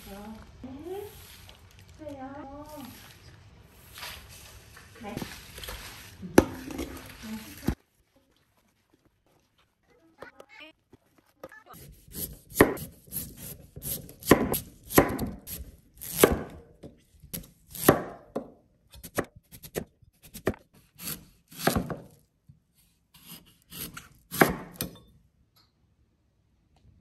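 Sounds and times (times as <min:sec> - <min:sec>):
knife slicing radish on board: 0:11.8 - 0:16.6, 0:17.3 - 0:18.3, 0:18.9 - 0:22.2, 0:23.2 - 0:25.0.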